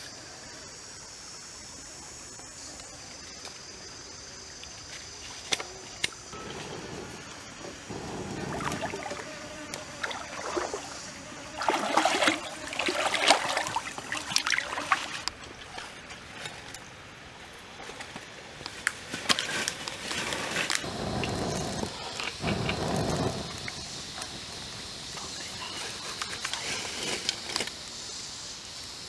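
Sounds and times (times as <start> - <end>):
person blowing on fire: 6.4 - 9.3, 20.8 - 24.9
stream water trickling: 7.2 - 17.4.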